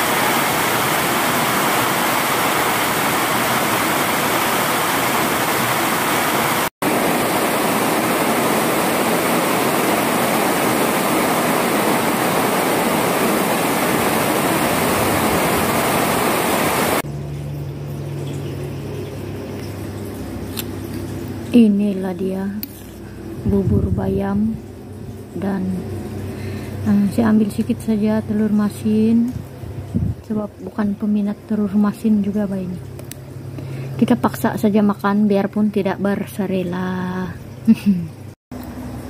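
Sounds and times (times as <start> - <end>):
heavy rain pouring: 0.0 - 17.0
low steady hum: 6.9 - 39.0.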